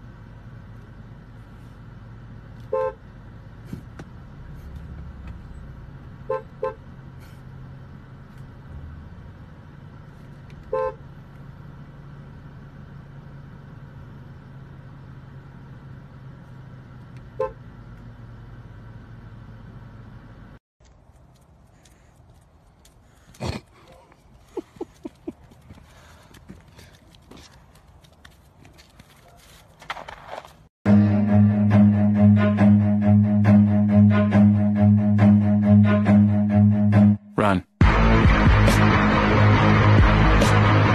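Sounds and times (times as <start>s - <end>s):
car engine humming: 0.0s - 30.1s, 30.9s - 37.1s, 37.8s - 40.9s
car horn short blasts: 2.7s - 3.0s, 6.2s - 6.8s, 10.7s - 11.0s, 17.4s - 17.6s.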